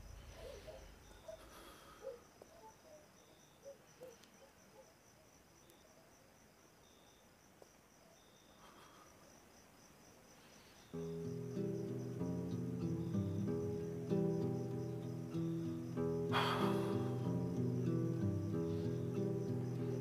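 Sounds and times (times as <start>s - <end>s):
crickets chirping: 0.0s - 20.0s
acoustic guitar music: 10.9s - 20.0s.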